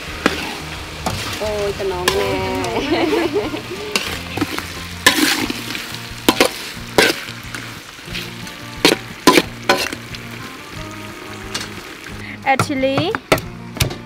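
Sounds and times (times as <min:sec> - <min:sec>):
spatula scraping a wok: 0:00.0 - 0:01.4, 0:03.9 - 0:10.2
sizzling: 0:00.0 - 0:14.0.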